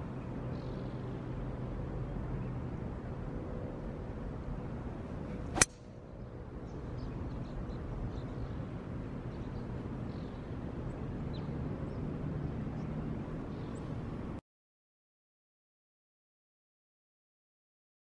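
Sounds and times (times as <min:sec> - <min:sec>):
low outdoor background noise: 0:00.0 - 0:14.4.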